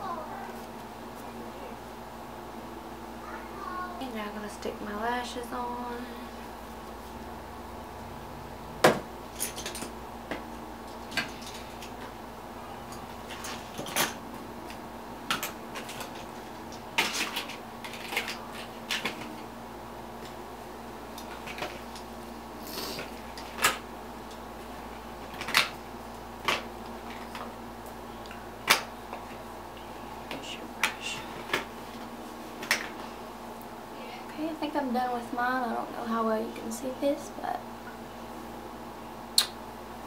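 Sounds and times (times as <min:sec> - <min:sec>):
low electrical hum: 0:00.0 - 0:40.0.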